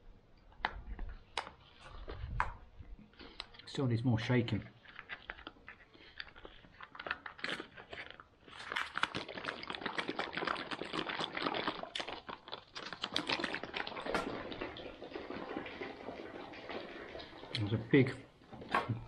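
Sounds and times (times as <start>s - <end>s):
pouch crinkling as shaken: 4.8s - 15.7s.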